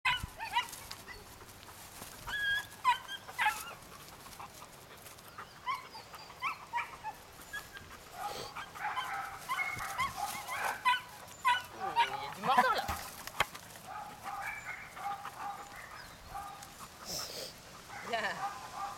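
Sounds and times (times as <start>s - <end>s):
puppy yipping and whimpering: 2.2s - 3.8s, 5.4s - 12.8s.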